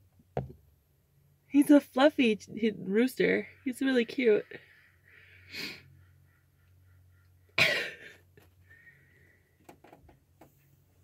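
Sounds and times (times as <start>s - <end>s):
person coughing: 7.6s - 8.2s.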